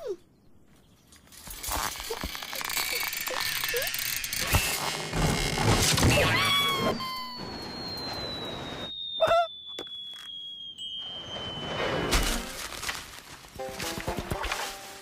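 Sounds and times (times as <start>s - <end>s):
coil springs creaking and twanging: 1.3s - 8.0s.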